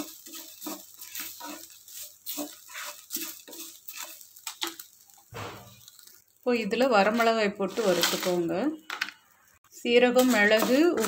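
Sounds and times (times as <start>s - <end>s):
spatula scraping frying pan: 0.0s - 6.2s, 7.0s - 8.6s, 10.0s - 11.0s
sharp knock: 5.4s - 5.8s.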